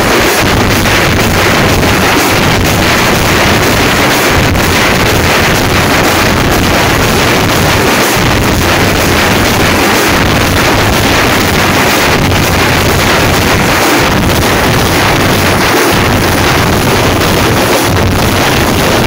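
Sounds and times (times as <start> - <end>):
many frame drums beaten loudly: 0.0 - 19.0.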